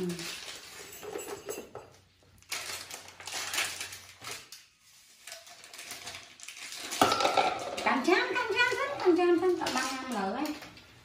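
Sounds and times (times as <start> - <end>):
plastic packet crinkling: 0.0 - 0.9, 2.3 - 7.0.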